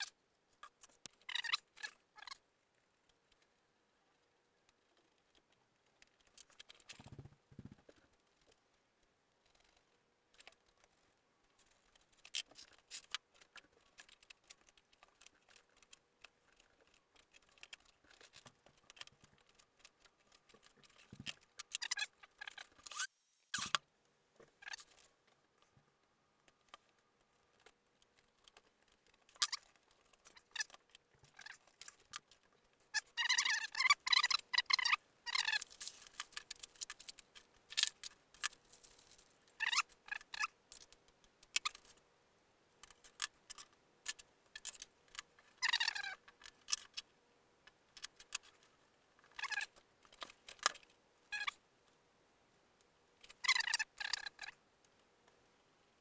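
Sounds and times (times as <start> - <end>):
small clicks and handling noises: 0.0 - 52.1.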